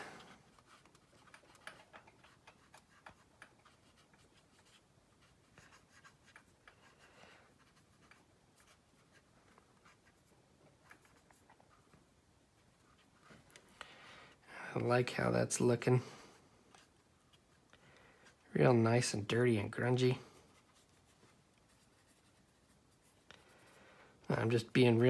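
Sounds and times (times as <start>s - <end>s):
cotton swab scratching on plastic: 0.5s - 13.3s, 20.5s - 23.5s.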